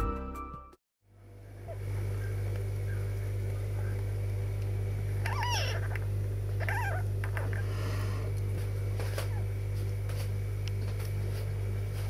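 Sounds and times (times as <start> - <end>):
steady low hum: 1.1 - 12.0
kitten mewing: 5.2 - 8.3.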